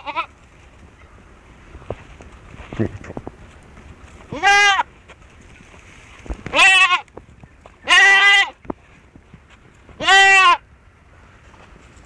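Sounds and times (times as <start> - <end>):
goat kid bleating: 0.0 - 0.3, 4.3 - 4.9, 6.5 - 7.1, 7.8 - 8.6, 10.0 - 10.6.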